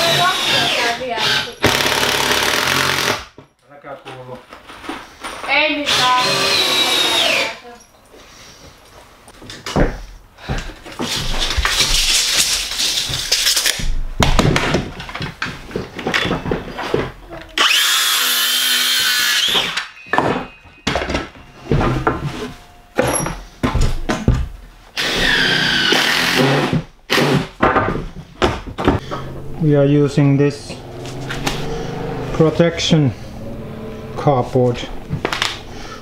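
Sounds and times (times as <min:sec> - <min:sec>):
circular saw cutting wood: 0:00.0 - 0:03.2, 0:17.6 - 0:19.8, 0:29.1 - 0:36.0.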